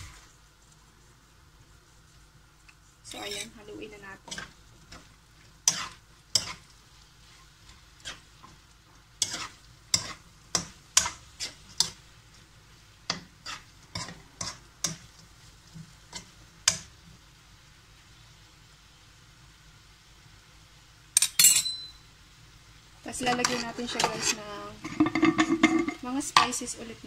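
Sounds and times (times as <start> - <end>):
spatula scraping a wok: 1.8 - 17.1, 23.2 - 26.6.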